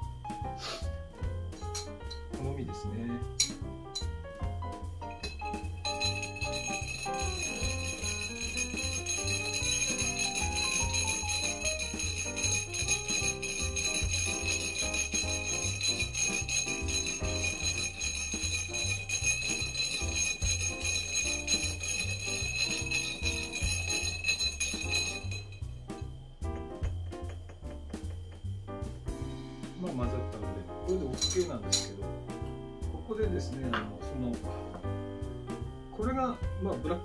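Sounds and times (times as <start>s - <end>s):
background music with bass: 0.0s - 37.0s
spoon stirring ice in glass: 5.2s - 25.6s.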